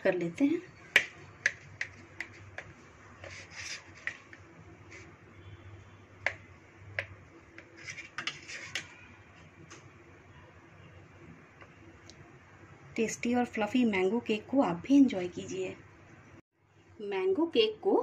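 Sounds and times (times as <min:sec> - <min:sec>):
knife sawing through cake: 0:03.2 - 0:04.2.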